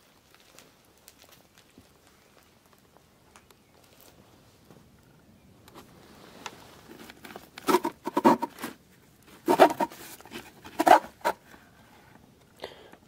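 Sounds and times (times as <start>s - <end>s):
wood scraping on wood: 5.8s - 12.1s.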